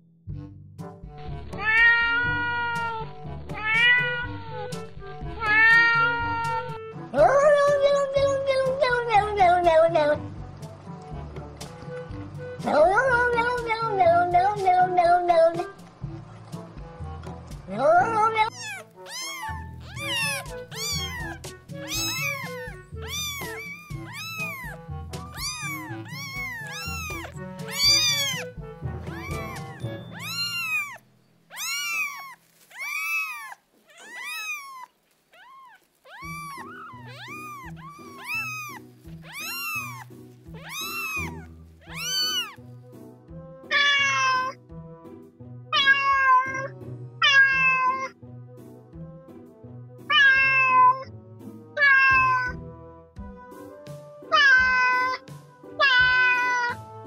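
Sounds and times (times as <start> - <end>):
background music: 0.3 - 31.8, 36.1 - 57.0
cats meowing: 1.6 - 6.8, 18.4 - 42.6, 43.7 - 44.6, 45.8 - 48.2, 50.1 - 51.1, 51.8 - 52.6, 54.3 - 55.2, 55.8 - 56.8.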